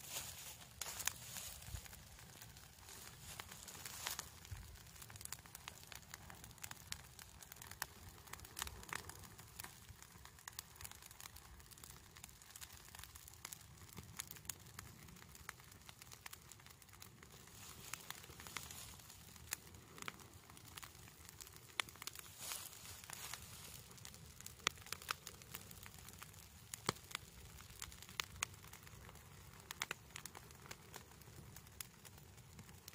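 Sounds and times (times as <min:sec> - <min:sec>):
leaves crackling in bonfire: 0:00.0 - 0:32.9
low fire hiss: 0:00.0 - 0:32.9.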